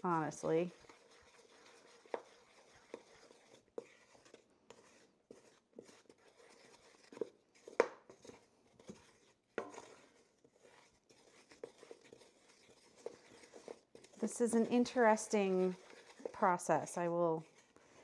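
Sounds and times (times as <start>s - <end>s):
wooden spoon scraping batter: 0.0s - 18.0s.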